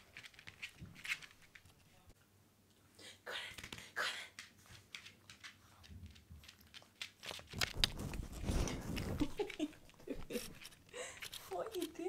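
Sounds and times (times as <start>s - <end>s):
puppy claws ticking on floor: 3.6s - 8.2s
puppy rubbing against camera: 7.5s - 10.8s.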